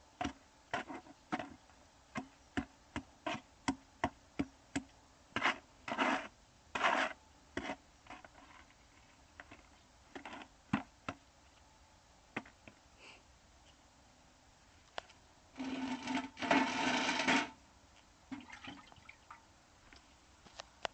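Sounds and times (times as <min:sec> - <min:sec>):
scraping on stone and mortar: 0:05.4 - 0:10.5, 0:15.6 - 0:17.6.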